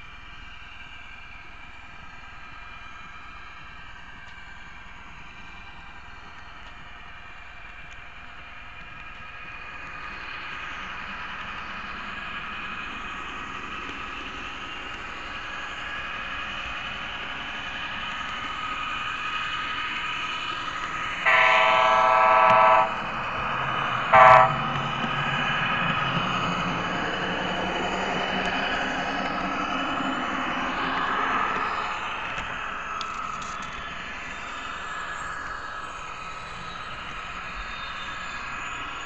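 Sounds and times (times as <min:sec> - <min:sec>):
model train whining: 0:00.0 - 0:39.0
train horn blasts: 0:21.2 - 0:23.0, 0:24.1 - 0:24.7.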